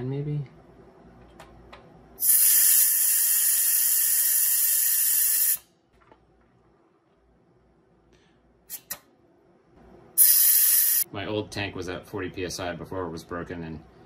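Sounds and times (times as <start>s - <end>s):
compressed air hissing from valve: 2.2s - 5.7s, 10.2s - 11.1s.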